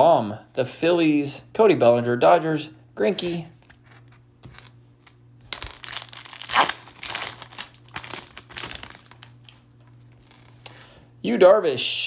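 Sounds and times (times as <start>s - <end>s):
plastic wrapper crinkling: 3.6s - 10.6s.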